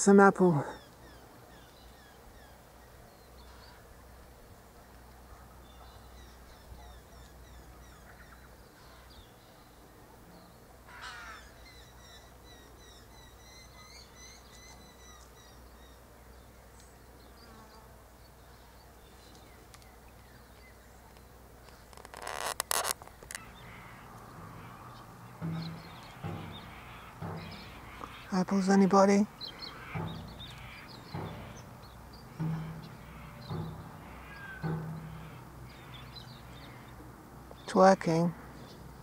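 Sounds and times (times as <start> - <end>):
faint birdsong chirps and whistles: 0.7 - 3.9, 5.0 - 22.4, 23.3 - 37.8
harsh bird call: 23.3 - 37.0.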